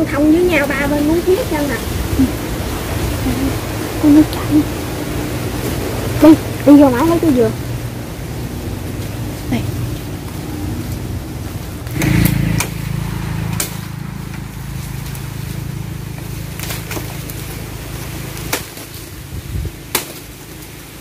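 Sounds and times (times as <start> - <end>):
low rumble: 0.0 - 19.9
machete chopping bamboo: 18.4 - 19.0, 19.9 - 20.3.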